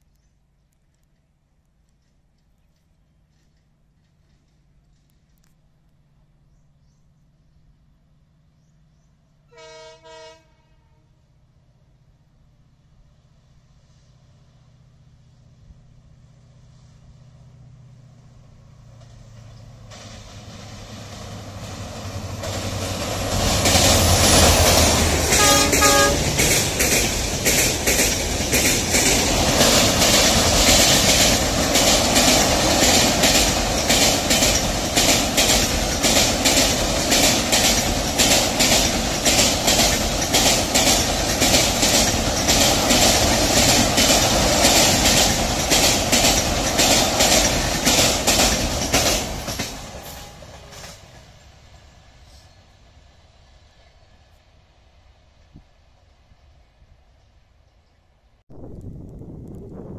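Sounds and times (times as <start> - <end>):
low train engine rumble: 2.0 - 59.9
train horn blast: 9.5 - 11.2, 24.4 - 26.5, 49.8 - 51.1
train wheels clattering over rail joints: 18.9 - 51.4.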